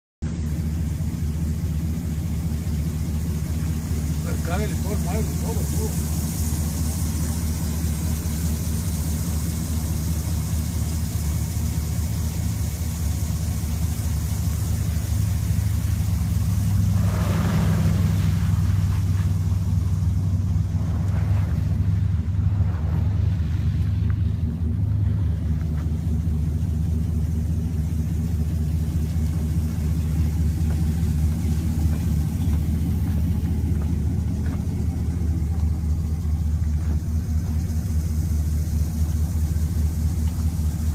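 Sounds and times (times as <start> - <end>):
pickup engine idling: 0.2 - 40.9
brief swish of noise: 16.9 - 19.4.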